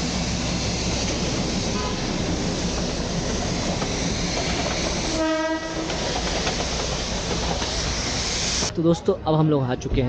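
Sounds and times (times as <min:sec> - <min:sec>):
train rumbling past: 0:00.0 - 0:10.0
train horn: 0:01.7 - 0:02.2, 0:05.1 - 0:06.0.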